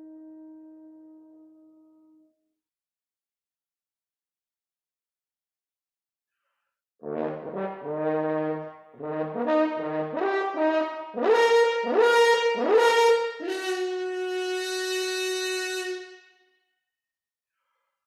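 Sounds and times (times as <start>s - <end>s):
solo horn playing: 0.0s - 2.2s, 7.2s - 16.4s.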